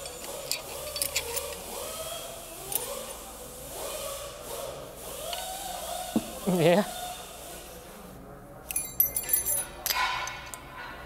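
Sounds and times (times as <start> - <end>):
metal parts clicking and clinking: 0.0 - 2.0, 2.6 - 3.2, 8.6 - 10.9.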